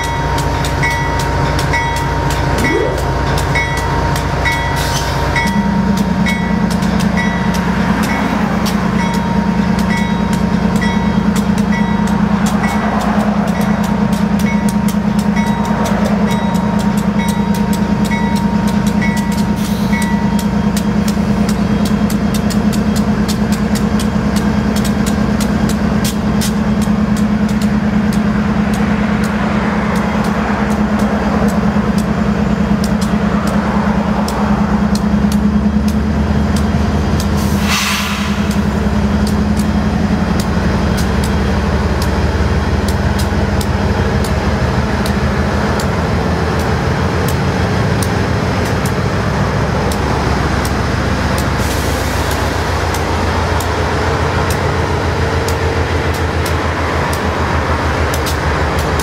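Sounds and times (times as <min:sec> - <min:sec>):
diesel locomotives rolling past: 0:00.0 - 0:59.0
brief hiss: 0:37.5 - 0:38.4.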